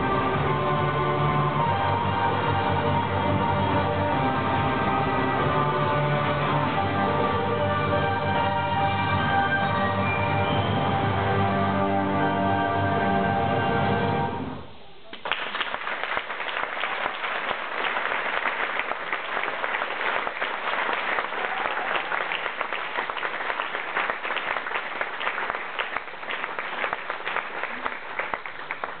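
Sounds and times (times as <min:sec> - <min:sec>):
music: 0:00.0 - 0:14.7
audience applauding: 0:15.0 - 0:29.0.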